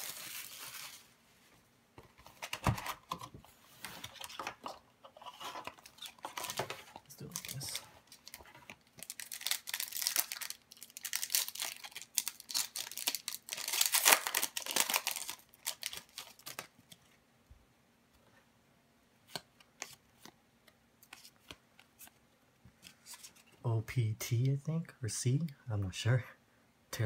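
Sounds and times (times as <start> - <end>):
foil wrapper crinkling and tearing: 0.0 - 1.1, 5.2 - 16.8.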